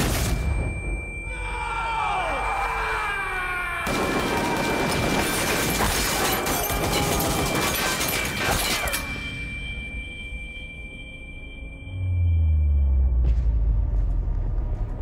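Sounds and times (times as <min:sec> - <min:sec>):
man yelling: 0:01.3 - 0:04.4
rapid automatic gunfire: 0:03.9 - 0:08.8.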